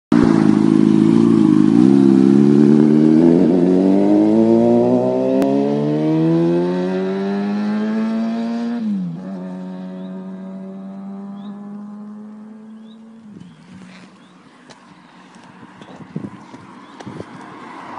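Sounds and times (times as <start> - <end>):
motorcycle engine pulling away: 0.1 - 14.4.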